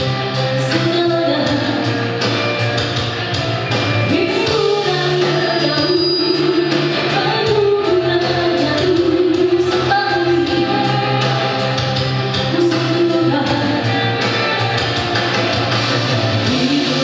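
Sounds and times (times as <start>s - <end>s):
backing music: 0.0s - 17.0s
woman singing into microphone: 0.4s - 2.6s, 4.0s - 14.8s, 16.4s - 17.0s.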